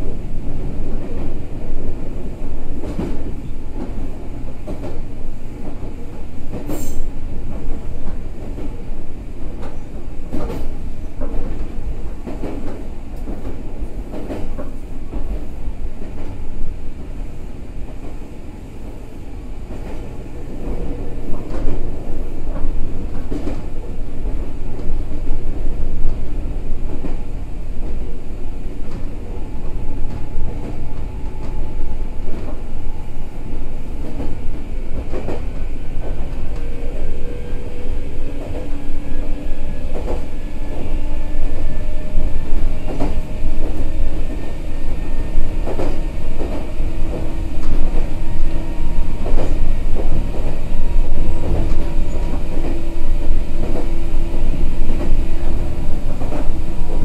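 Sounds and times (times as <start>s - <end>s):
train wheels rumbling on rail: 0.0s - 57.0s
rail-joint clacks: 2.7s - 8.8s, 9.4s - 16.4s, 19.6s - 28.0s, 28.8s - 32.7s, 33.9s - 57.0s.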